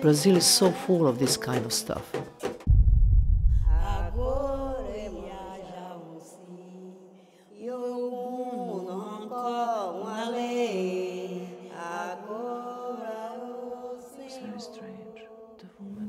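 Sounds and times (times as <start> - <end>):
low drone: 2.7 - 5.5.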